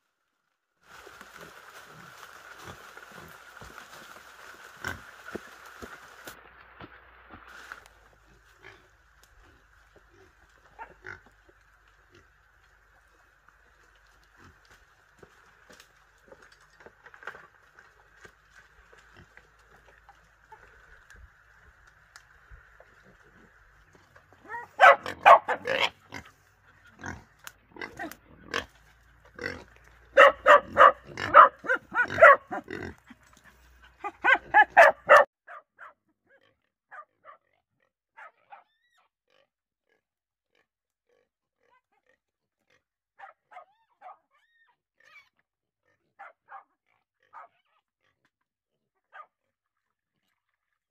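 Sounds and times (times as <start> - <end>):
young wild boars calling: 8.4 - 16.4, 18.9 - 35.3.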